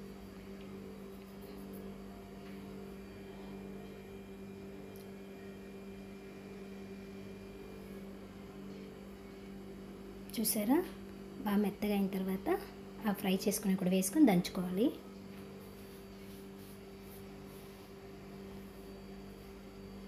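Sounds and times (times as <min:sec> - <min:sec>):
low electrical hum: 0:00.0 - 0:20.0.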